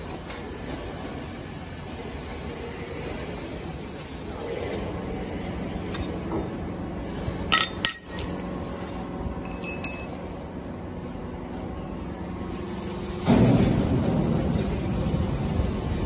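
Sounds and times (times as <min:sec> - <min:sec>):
steady factory hum: 0:00.0 - 0:16.0
tools clinking on steel frame: 0:07.5 - 0:08.6, 0:09.4 - 0:10.3.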